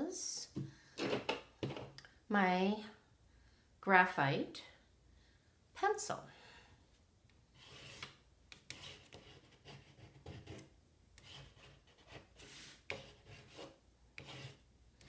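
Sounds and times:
graphite scratching on paper: 7.6s - 8.1s, 8.7s - 14.6s.

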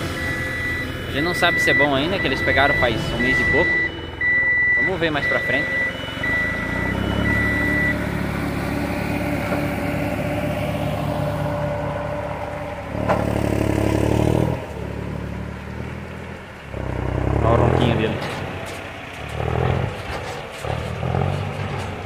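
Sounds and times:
reversing alarm beeping: 0.0s - 12.6s
diesel tractor engines running: 0.0s - 22.0s.

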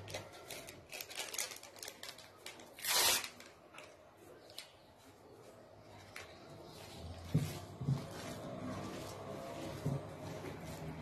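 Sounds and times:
hands rubbing dough in a bowl: 4.2s - 11.0s.

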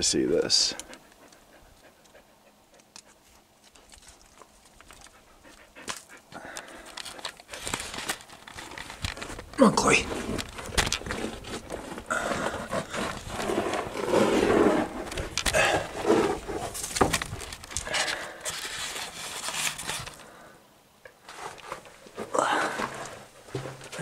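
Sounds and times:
camera handling rustling: 5.8s - 9.6s, 10.2s - 12.1s, 15.0s - 15.6s, 16.4s - 20.3s.

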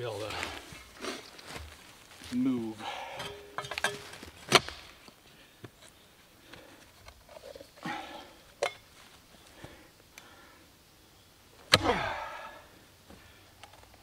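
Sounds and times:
post hole digger striking soil: 3.2s - 4.9s, 11.6s - 12.3s.

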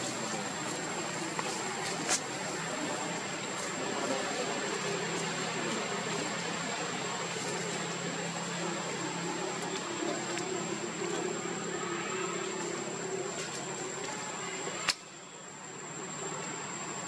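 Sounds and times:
outdoor background hiss: 0.0s - 17.0s
sharp click: 14.8s - 15.1s.

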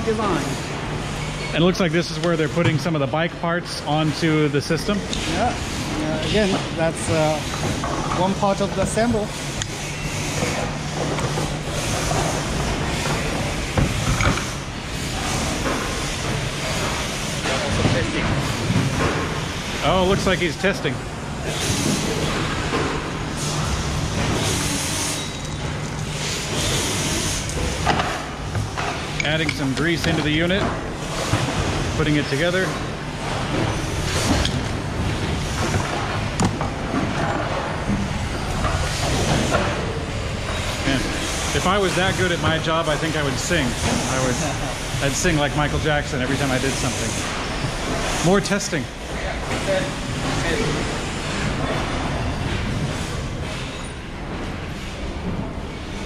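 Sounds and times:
factory floor hum: 0.0s - 56.0s.

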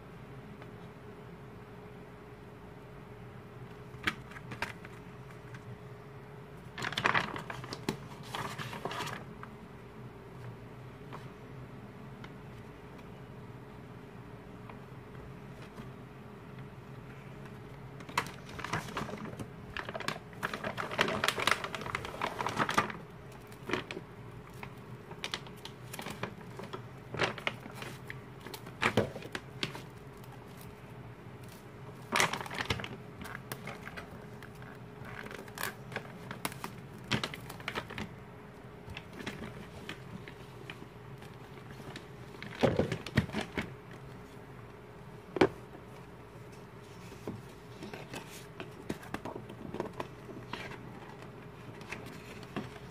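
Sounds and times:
plastic bag rustling: 6.6s - 9.4s, 18.0s - 38.2s, 38.8s - 44.5s, 45.2s - 52.9s.

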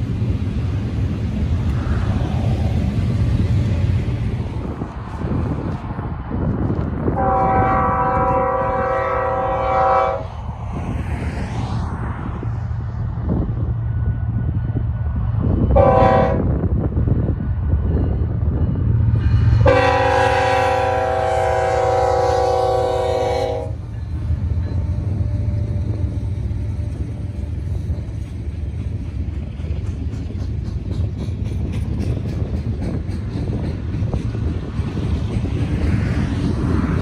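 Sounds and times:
diesel locomotives rumbling: 0.0s - 37.0s
locomotive horn blasts: 7.2s - 10.3s, 15.7s - 16.5s, 19.6s - 23.8s.

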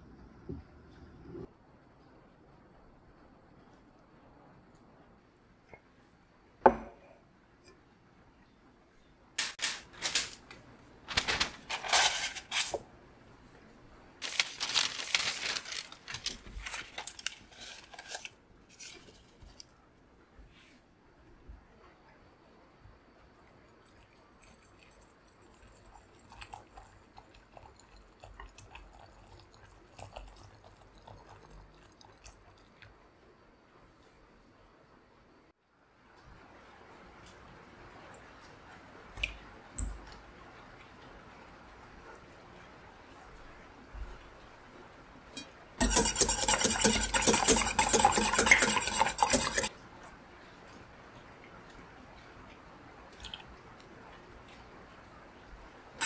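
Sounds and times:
whisk clattering against bowl: 45.8s - 49.7s.

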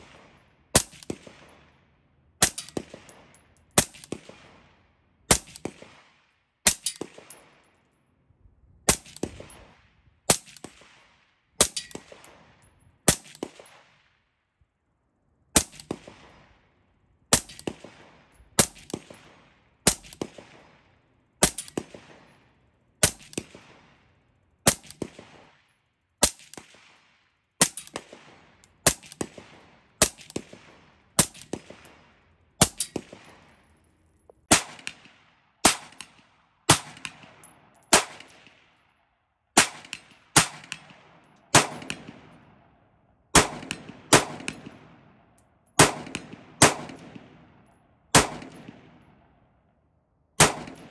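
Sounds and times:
suppressed rifle shots: 45.8s - 47.2s, 48.1s - 48.8s, 50.4s - 50.9s
gunshot echo: 48.1s - 48.8s, 50.4s - 50.9s.

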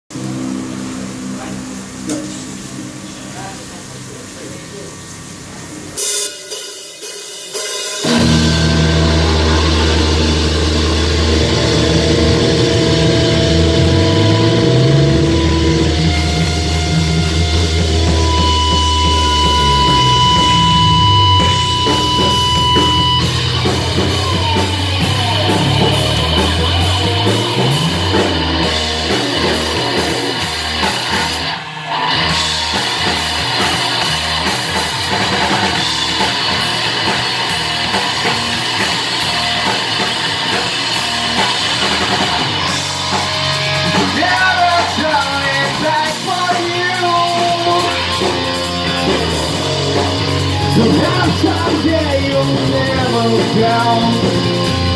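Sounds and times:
live rock band playing: 0.1s - 4.1s, 5.9s - 54.9s
vocals: 43.7s - 49.6s, 50.4s - 54.9s.

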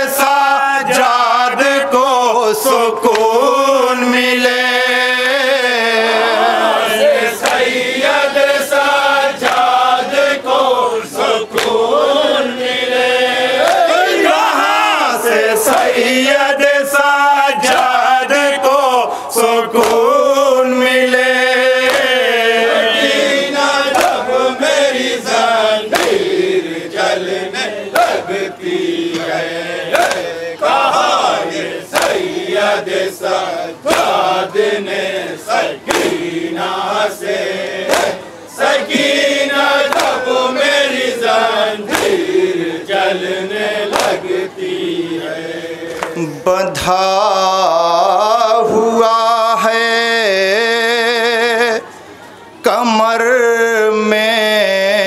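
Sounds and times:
men chanting in unison: 0.0s - 51.9s
hand slaps on chest: 19.8s - 20.0s, 25.9s - 26.2s, 31.9s - 32.2s, 35.9s - 36.2s, 37.9s - 38.2s, 39.9s - 40.2s, 41.9s - 42.2s, 43.9s - 44.2s.

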